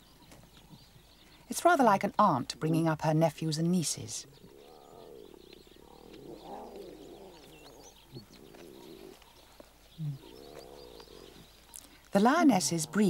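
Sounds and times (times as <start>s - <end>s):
faint bird chirps: 4.2s - 13.0s
lion cub low grunt: 4.3s - 9.2s, 9.9s - 11.4s
lion cubs humming while suckling: 4.3s - 11.7s.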